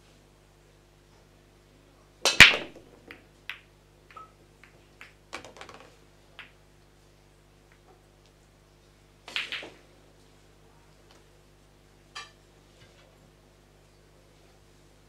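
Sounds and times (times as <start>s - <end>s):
cue ball cracking into rack: 2.3s - 6.5s, 9.3s - 9.8s
pool balls clicking: 2.3s - 6.6s, 9.3s - 9.9s.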